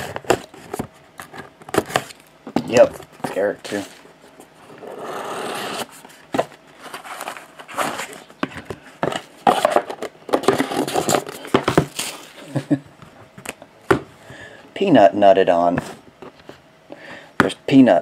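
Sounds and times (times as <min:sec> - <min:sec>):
cardboard box rustling and scraping: 0:04.8 - 0:08.3, 0:09.1 - 0:12.4.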